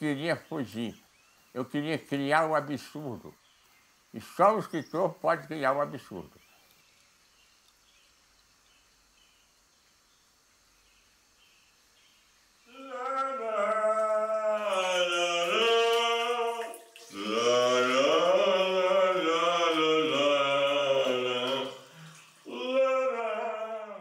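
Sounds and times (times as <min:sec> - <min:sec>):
man singing long notes: 0:12.7 - 0:24.0.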